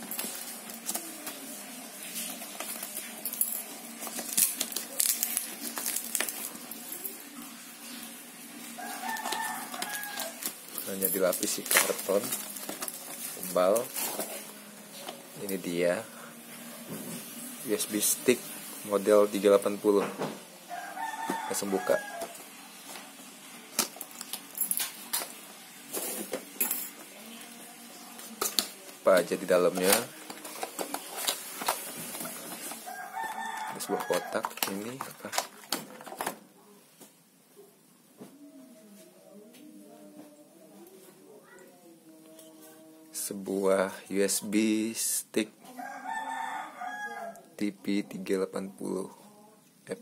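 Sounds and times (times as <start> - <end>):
tape and cardboard tearing: 2.1 - 7.0.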